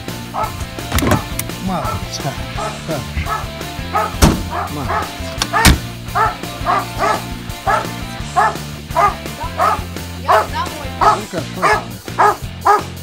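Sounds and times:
dog barking: 0.4 - 0.6, 1.2 - 13.0.

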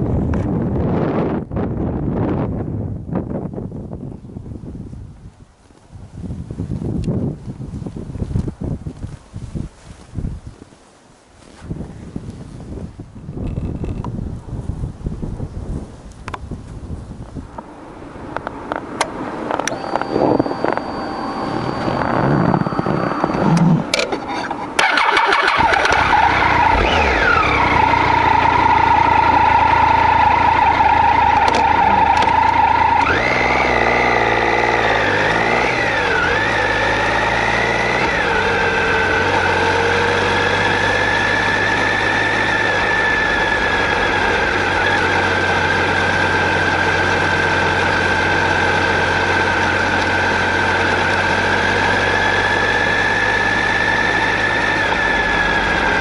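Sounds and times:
motorcycle engine revving: 18.4 - 56.0.

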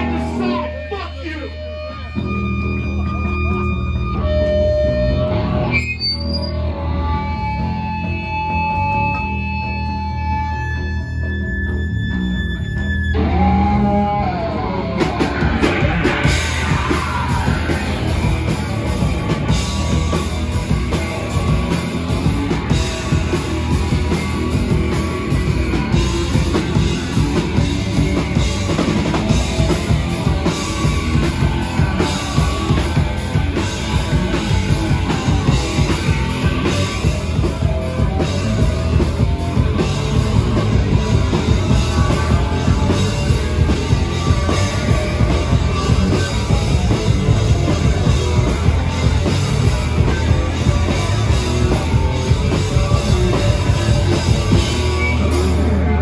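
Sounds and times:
punk band playing live: 0.0 - 56.0.

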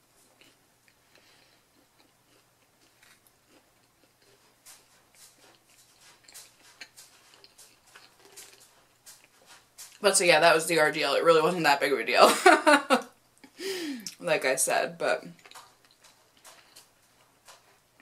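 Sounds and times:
faint chewing mouth clicks: 0.2 - 10.0, 15.3 - 17.8.

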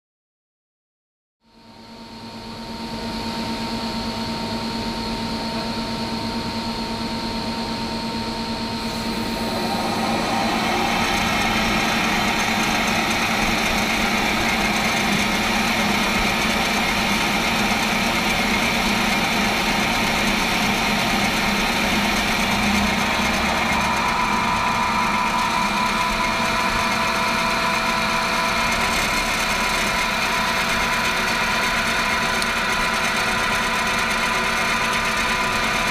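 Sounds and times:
welding machine humming: 8.6 - 35.9.

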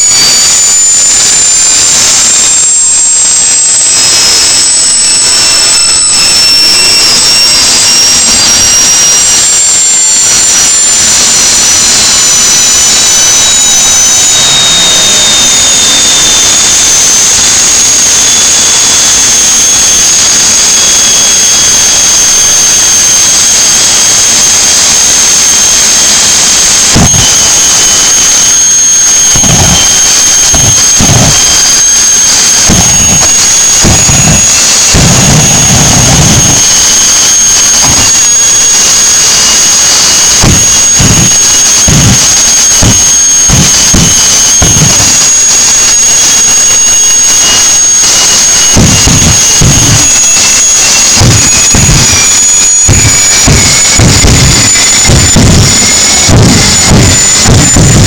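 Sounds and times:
small jet engine whining: 0.0 - 58.0.

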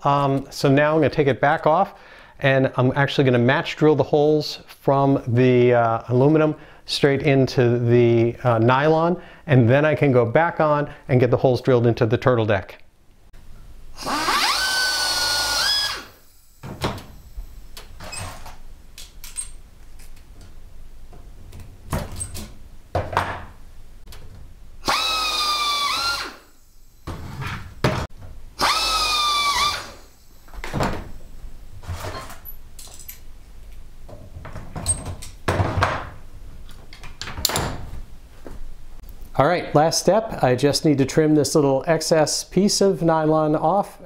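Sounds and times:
drill whining: 14.0 - 18.4, 24.8 - 27.2, 28.6 - 31.2.

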